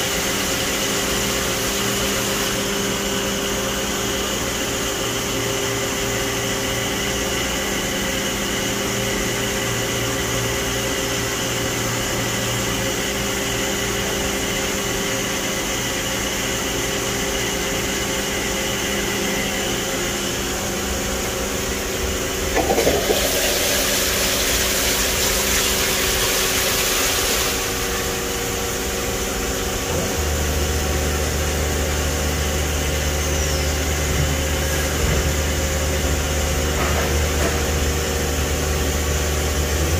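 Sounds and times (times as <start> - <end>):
machine mechanical hum: 0.0 - 39.9
deep loud hum: 15.6 - 39.9.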